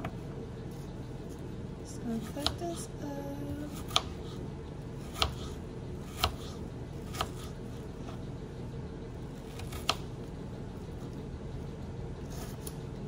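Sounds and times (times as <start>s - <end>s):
knife chopping on cutting board: 3.7s - 4.4s, 5.0s - 7.5s.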